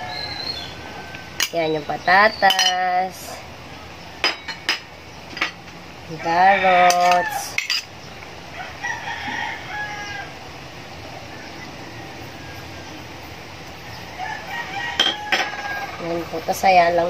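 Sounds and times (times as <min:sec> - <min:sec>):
spoon and bowl clinking on a pan: 0:02.4 - 0:03.0, 0:04.2 - 0:05.6, 0:06.8 - 0:07.9, 0:15.0 - 0:15.6.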